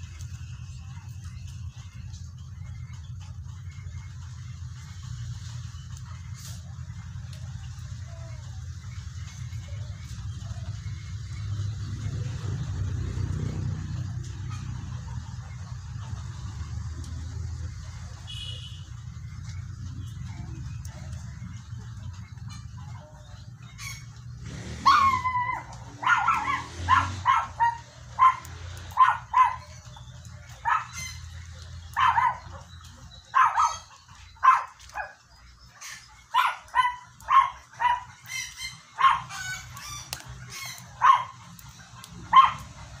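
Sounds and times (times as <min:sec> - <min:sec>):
dog yelping: 0:24.7 - 0:43.0
dog whining: 0:24.8 - 0:29.7.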